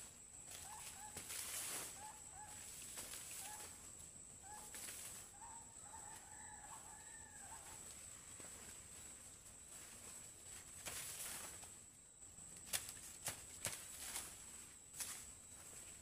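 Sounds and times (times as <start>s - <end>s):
distant chicken calls: 0.0s - 9.8s
rooster crowing: 5.4s - 7.9s.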